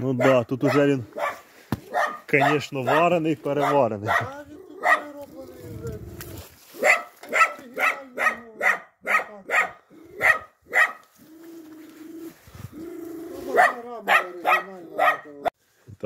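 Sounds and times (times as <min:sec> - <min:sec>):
dog barking: 0:00.1 - 0:05.2, 0:06.8 - 0:11.1, 0:13.5 - 0:15.5.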